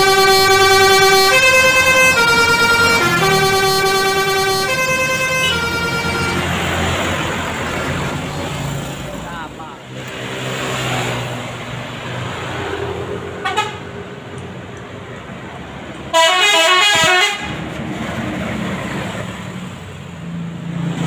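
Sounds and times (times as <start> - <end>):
bus horn warbling tune: 0.0 - 7.5, 13.4 - 13.9, 16.1 - 17.6
road traffic noise: 0.0 - 21.0.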